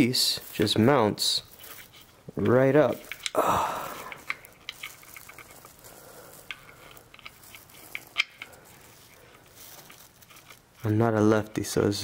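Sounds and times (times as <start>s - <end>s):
hand rustling: 0.0s - 12.0s
clicks of small metal fittings: 1.7s - 3.4s, 4.0s - 10.9s.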